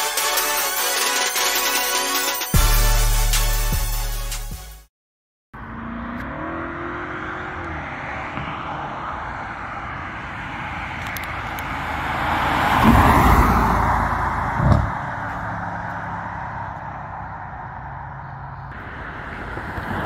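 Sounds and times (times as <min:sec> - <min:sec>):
car engine revving past: 0:05.6 - 0:20.0
short sharp thump: 0:14.6 - 0:15.0.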